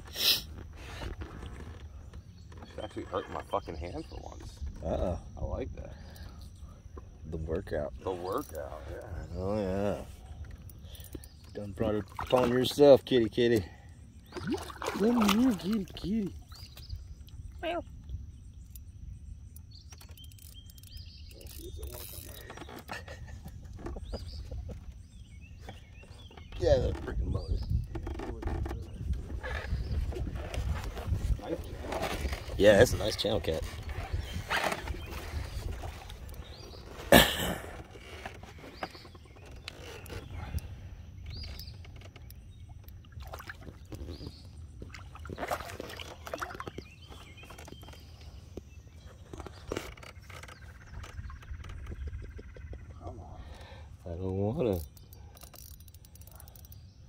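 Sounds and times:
fish splashing and thrashing: 10.2s - 13.0s, 14.2s - 18.9s, 33.5s - 52.8s
fishing reel clicking: 20.0s - 22.6s, 54.7s - 56.8s.

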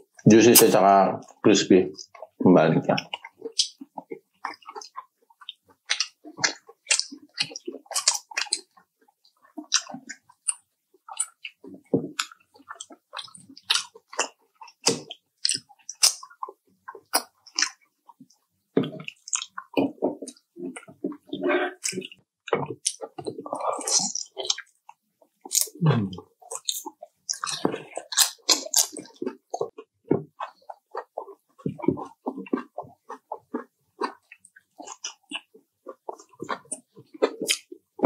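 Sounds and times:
crunchy chewing: 1.2s - 38.0s
wet mouth smacks: 4.4s - 8.7s, 9.7s - 11.6s, 12.2s - 17.8s, 18.9s - 29.8s, 30.4s - 37.7s.

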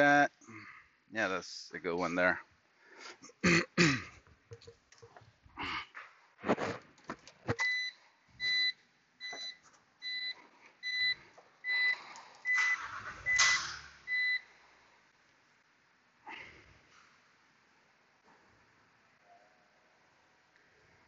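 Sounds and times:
clicks and knocks: 4.5s - 5.2s
electronic warning beeps: 7.6s - 14.4s.

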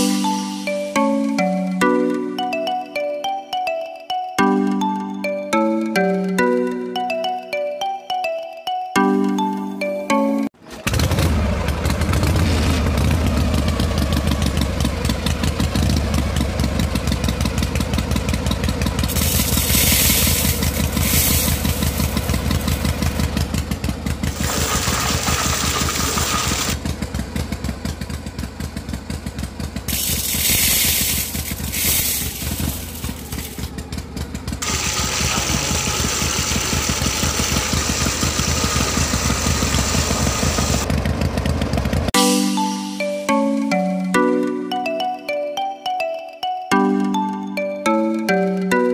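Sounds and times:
small engine thumping: 10.6s - 42.2s.

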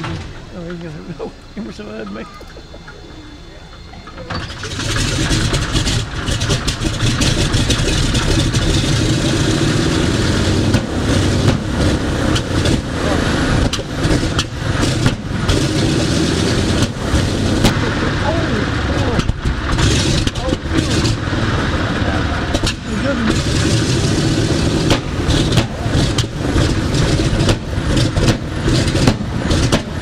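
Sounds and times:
radial engine starting: 0.0s - 30.0s.

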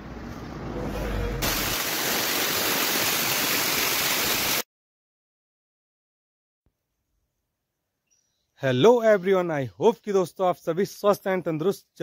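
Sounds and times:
loud rushing noise: 0.5s - 2.4s.

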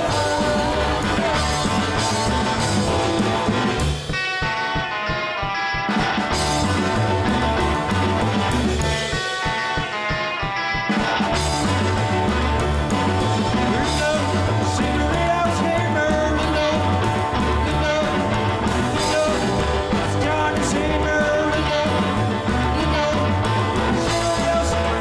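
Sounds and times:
steady bass beat: 0.0s - 4.3s
rock and roll song with singing: 0.0s - 25.0s.

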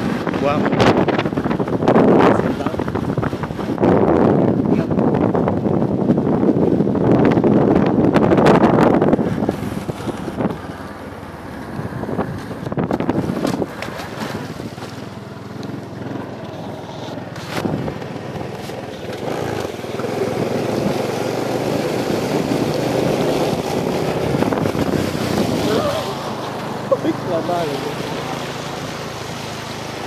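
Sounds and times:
motorcycle engine running: 0.0s - 30.0s
wheels splashing water: 0.0s - 30.0s
wind on microphone: 0.0s - 30.0s.

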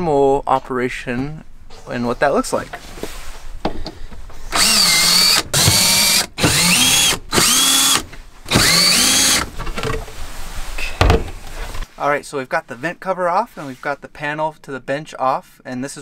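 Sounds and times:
cordless drill whining: 4.5s - 9.5s.

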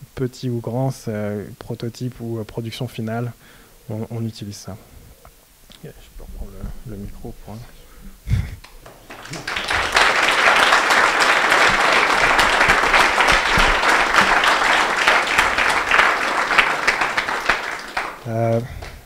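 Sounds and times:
audience applauding: 8.6s - 19.0s.

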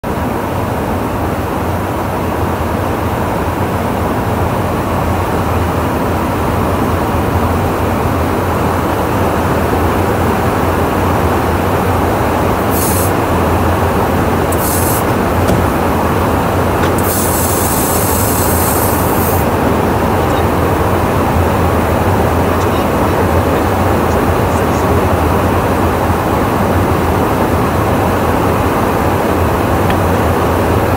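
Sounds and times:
aircraft cabin engine drone: 0.0s - 30.9s
short high hisses: 12.6s - 13.3s, 14.4s - 15.9s, 16.9s - 19.5s.

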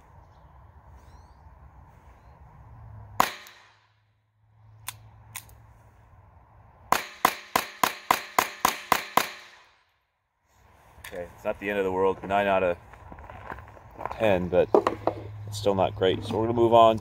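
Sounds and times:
pistol shots: 3.2s - 3.8s, 6.9s - 9.8s.

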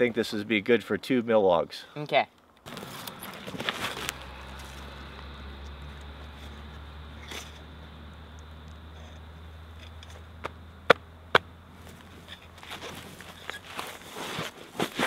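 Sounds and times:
footsteps in brush: 2.7s - 5.3s, 11.8s - 15.0s
steady low hum: 2.7s - 14.7s.

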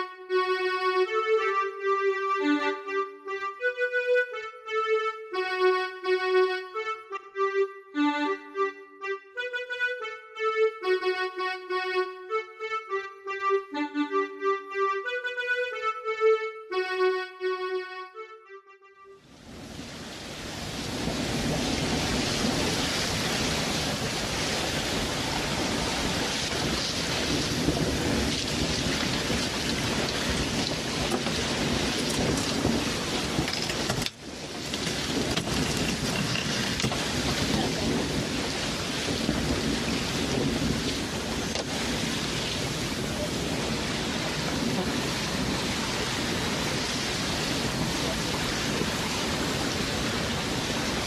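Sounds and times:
steady rushing noise: 19.3s - 51.0s.

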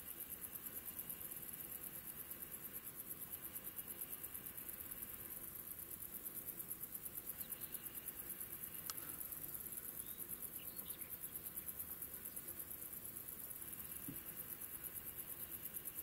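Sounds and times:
insects chirring: 0.0s - 16.0s
faint bird chirps: 9.9s - 11.7s.

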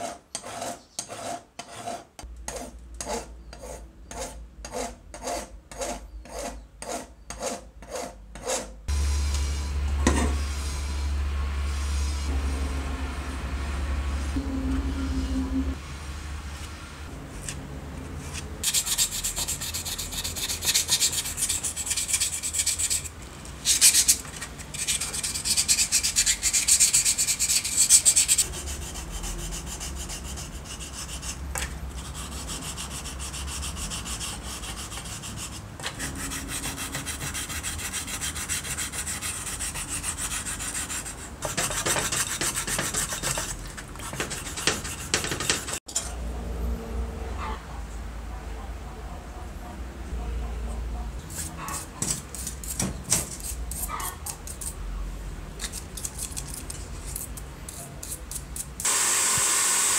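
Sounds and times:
sandpaper rubbing on metal: 18.6s - 31.4s, 32.0s - 45.8s.

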